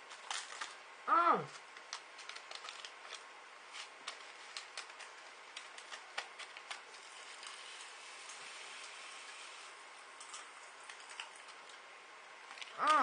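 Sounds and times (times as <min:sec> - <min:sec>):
popping candy crackling: 0:01.5 - 0:11.8.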